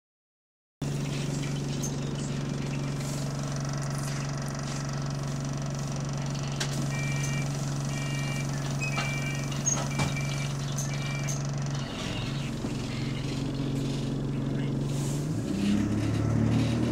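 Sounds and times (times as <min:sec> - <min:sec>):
bus engine idling: 0:00.8 - 0:16.9
short high beeps: 0:06.9 - 0:12.3.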